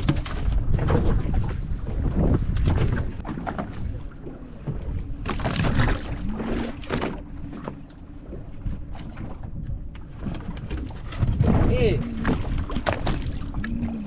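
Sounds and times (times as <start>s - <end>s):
water lapping against boat hull: 0.0s - 14.0s
wind buffeting microphone: 0.0s - 14.0s
splashing and knocking: 10.2s - 14.0s.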